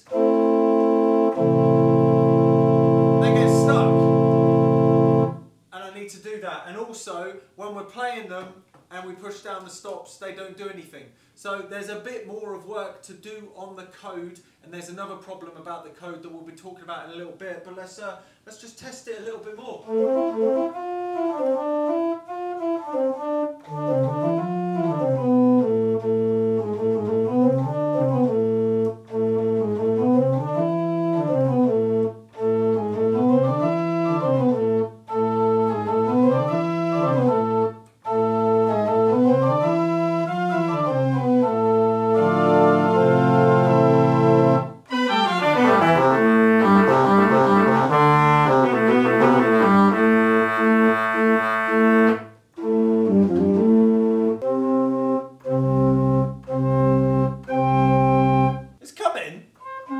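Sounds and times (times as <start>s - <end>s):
held low organ note: 0.0s - 5.4s, 19.9s - 58.6s
pipe organ phrase: 0.0s - 5.5s, 19.8s - 58.7s.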